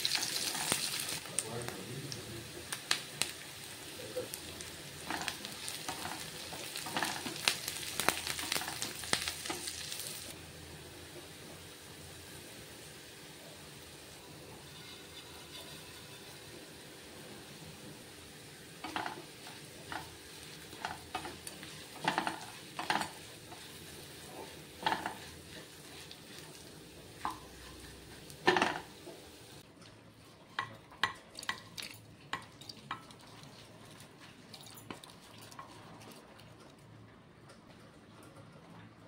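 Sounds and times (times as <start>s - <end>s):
wooden spatula scraping wok: 0.0s - 1.2s, 4.3s - 10.4s, 14.3s - 18.1s, 18.7s - 31.1s
low sizzle: 0.0s - 39.0s.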